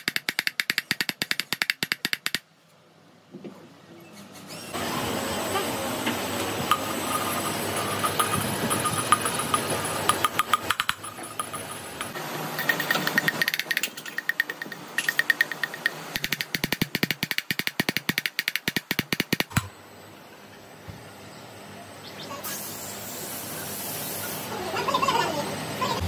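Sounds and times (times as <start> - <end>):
rapid metallic tapping: 6.7 - 19.7.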